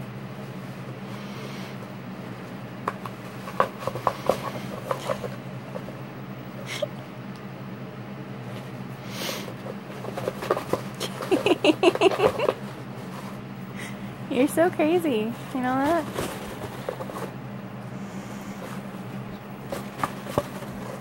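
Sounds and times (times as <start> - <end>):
paper towels crinkling: 15.2 - 17.4, 18.5 - 21.0.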